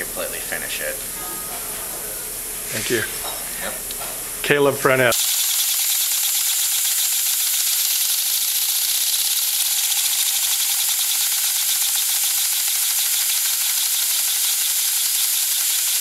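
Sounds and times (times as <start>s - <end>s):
rapid mechanical clatter: 5.2s - 16.0s.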